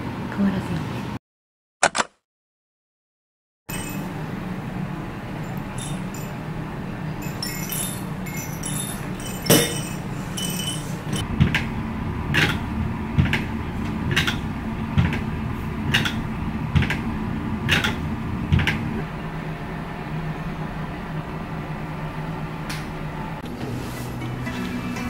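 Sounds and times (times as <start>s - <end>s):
sharp click: 1.8s - 2.2s
light clinks: 3.7s - 4.2s, 5.4s - 6.4s, 7.2s - 11.2s
background hum: 3.7s - 23.4s.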